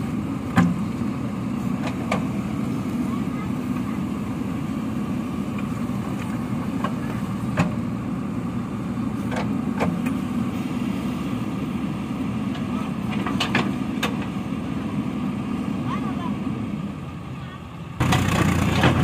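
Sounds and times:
diesel engine under load: 0.0s - 19.0s
gravel dumping: 18.0s - 19.0s.

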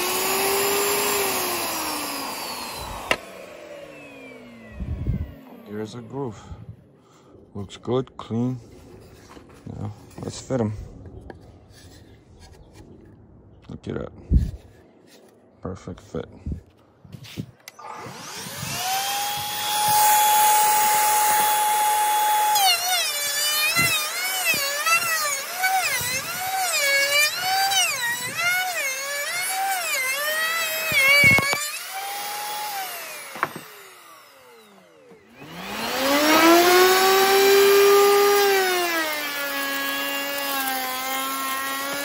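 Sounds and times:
router cutting a board: 0.0s - 6.5s, 17.7s - 42.0s
wood router whining: 0.0s - 7.4s, 17.4s - 42.0s.

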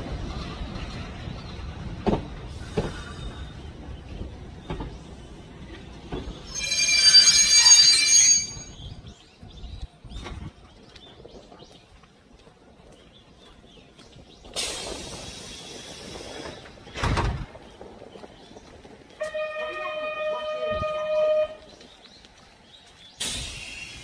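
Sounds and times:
train rolling past: 0.0s - 11.7s, 12.5s - 24.0s
high-pitched wheel squeal: 6.4s - 8.9s.

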